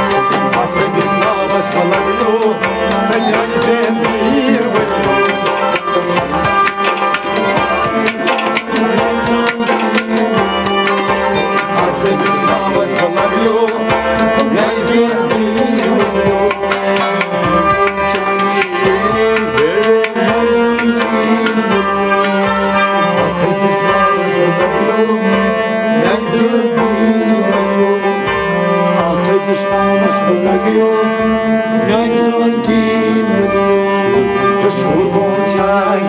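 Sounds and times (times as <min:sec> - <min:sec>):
hand drum percussion: 0:00.0 - 0:24.8
held instrumental notes: 0:00.0 - 0:36.0
man singing: 0:00.0 - 0:36.0.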